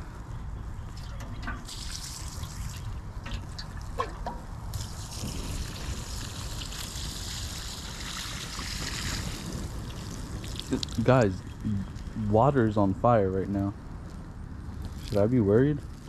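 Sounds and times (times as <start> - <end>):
water splashing onto fire: 0.9 - 13.0, 14.8 - 16.0.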